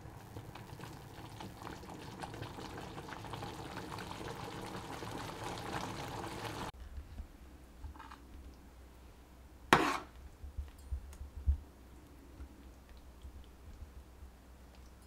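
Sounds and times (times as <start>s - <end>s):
sauce bubbling in a pan: 0.0s - 6.8s.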